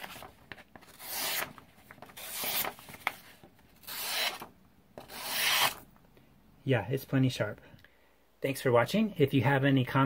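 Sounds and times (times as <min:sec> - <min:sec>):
knife slicing paper: 0:00.0 - 0:03.2, 0:03.8 - 0:05.8.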